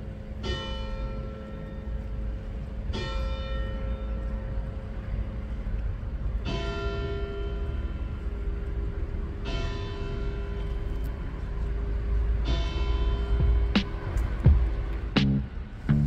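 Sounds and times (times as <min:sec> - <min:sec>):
church bell tolling: 0:00.0 - 0:05.3, 0:06.3 - 0:08.8, 0:09.4 - 0:11.0, 0:12.4 - 0:13.8
low rumble: 0:10.6 - 0:16.0.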